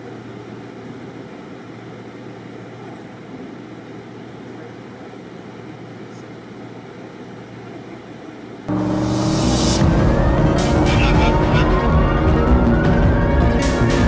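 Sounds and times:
idling vehicles: 0:08.7 - 0:14.0
street noise: 0:08.7 - 0:14.0.

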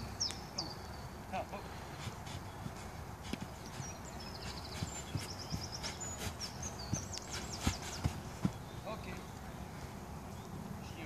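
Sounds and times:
birds chirping: 0:00.0 - 0:11.0
footsteps on artificial turf: 0:02.0 - 0:09.2.

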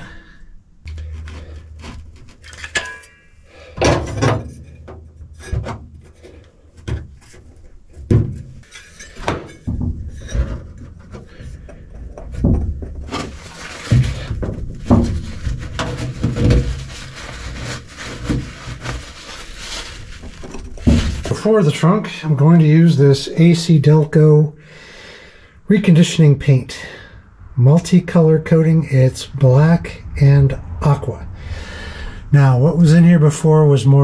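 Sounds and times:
rag rubbing: 0:08.4 - 0:21.6.

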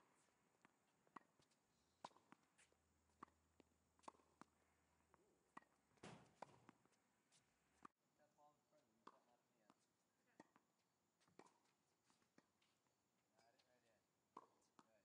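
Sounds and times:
brief scuffing: 0:06.0 - 0:06.7.

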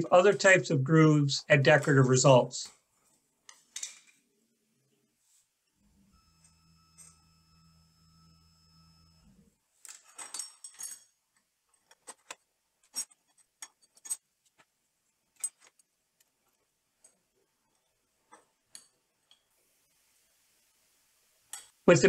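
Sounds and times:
low hum of router lift: 0:05.8 - 0:09.6
metal tools clinking: 0:09.8 - 0:14.7, 0:15.3 - 0:15.9.

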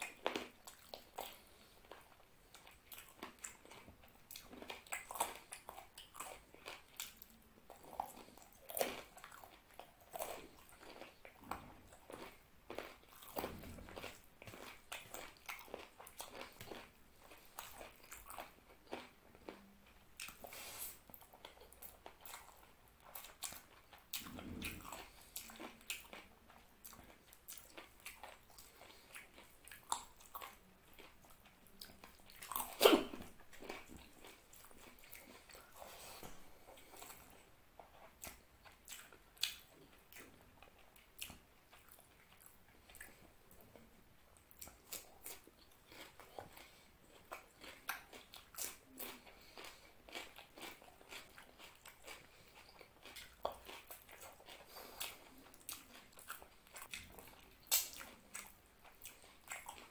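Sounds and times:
man chewing food: 0:00.0 - 0:59.9
wet mouth clicks and smacks: 0:56.2 - 0:58.5.

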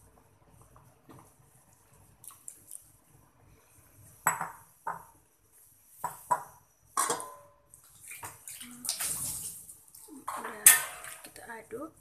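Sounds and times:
utensil knocking metal pot: 0:06.1 - 0:07.6
liquid sloshing as stirred: 0:07.8 - 0:11.3.

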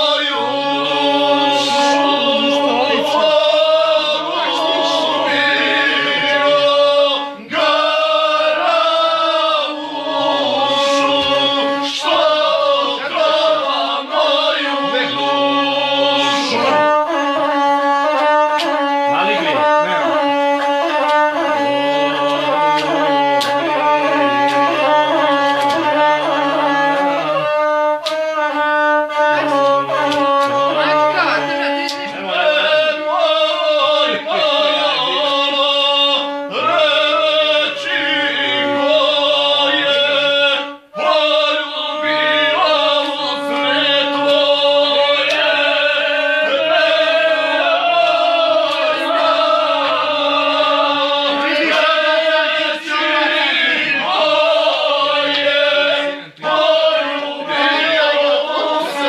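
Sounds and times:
bowed string instrument melody: 0:00.0 - 0:59.0
man singing: 0:00.0 - 0:59.0.

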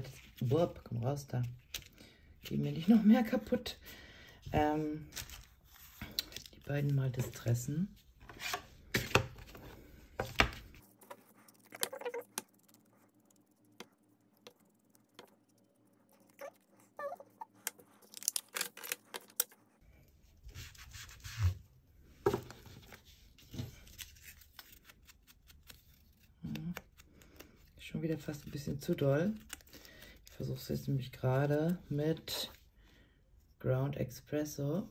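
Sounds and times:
paper rustling: 0:05.0 - 0:13.0, 0:22.2 - 0:30.5.

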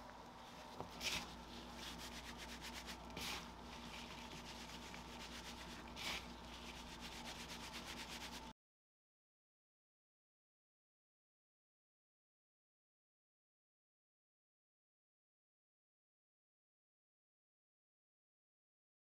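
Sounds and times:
hands rubbing crumbly dough: 0:00.3 - 0:08.5.

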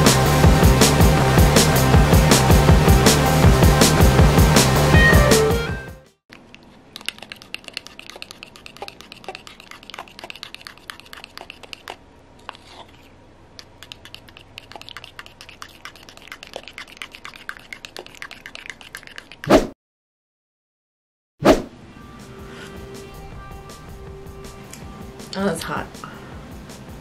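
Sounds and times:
palette knife scraping paint: 0:06.5 - 0:19.4.

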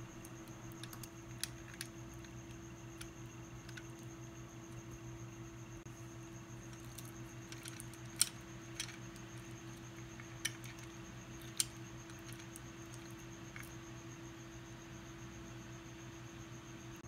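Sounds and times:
plastic parts clicking: 0:00.0 - 0:04.1, 0:06.7 - 0:13.7.

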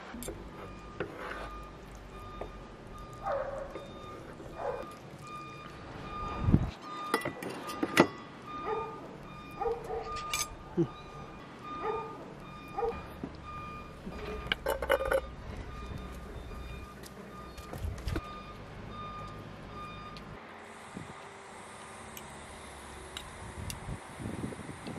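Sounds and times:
faint electronic beeping: 0:00.5 - 0:20.2.

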